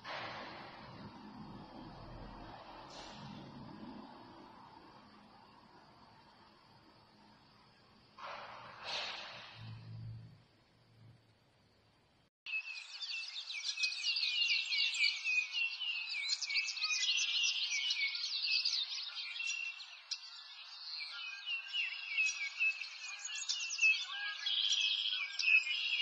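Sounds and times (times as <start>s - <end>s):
small birds chirping: 12.5s - 26.0s.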